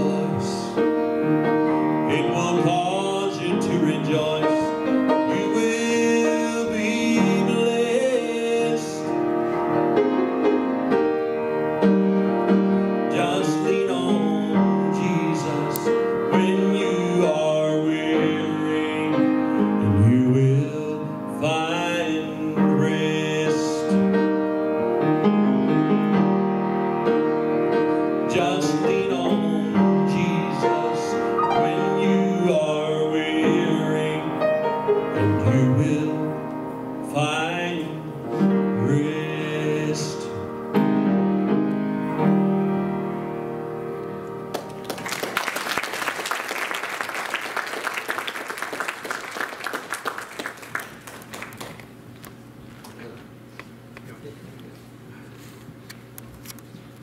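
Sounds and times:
person singing: 0.0 - 0.9, 2.1 - 9.2, 13.1 - 24.1, 28.3 - 40.6
piano accompaniment: 0.0 - 51.0
congregation applauding: 44.5 - 52.0.

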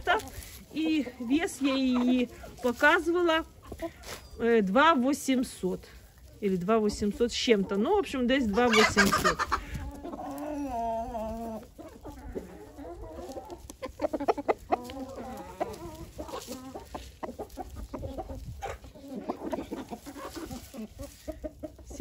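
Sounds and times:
chickens clucking: 0.0 - 22.0.

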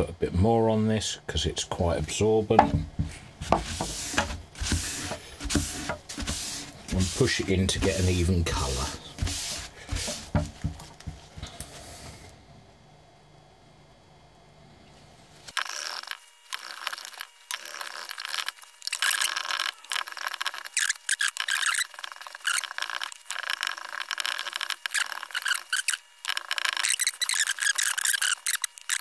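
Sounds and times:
cloth rag scrubbing wood: 2.0 - 12.0.

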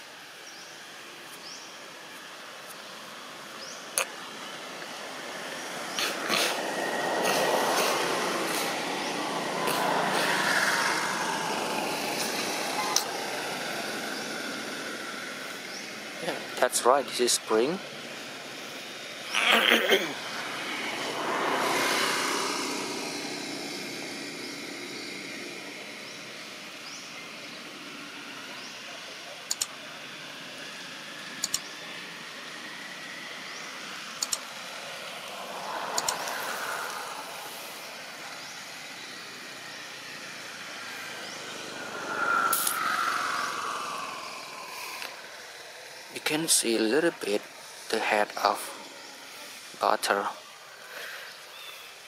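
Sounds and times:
distant vehicles passing: 0.0 - 52.0
sharp double clicks: 29.5 - 29.7, 31.4 - 31.7, 34.2 - 34.5, 35.9 - 36.4.

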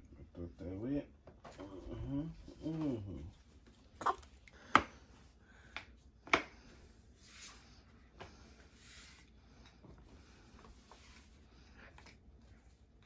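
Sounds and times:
soft rubbing and rustling: 6.7 - 13.0.

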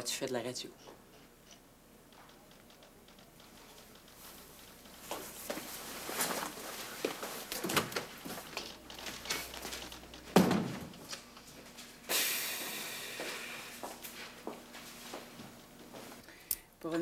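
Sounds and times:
footsteps: 2.0 - 12.0, 12.6 - 16.2
door slamming shut: 10.3 - 10.9
high hiss: 12.0 - 13.9.

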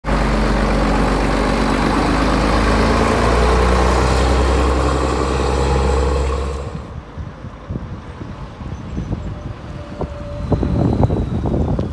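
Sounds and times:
diesel truck engine pulling away: 0.0 - 7.0.

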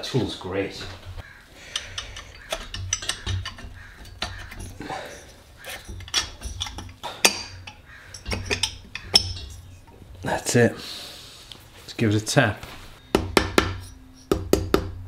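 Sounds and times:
metallic clicks taps and scrapes: 1.1 - 10.0.

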